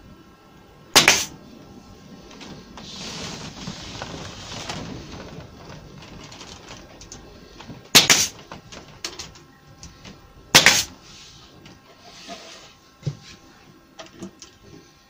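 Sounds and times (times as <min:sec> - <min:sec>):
pneumatic stapler firing: 0:01.0 - 0:01.3, 0:07.9 - 0:08.4, 0:10.6 - 0:10.9.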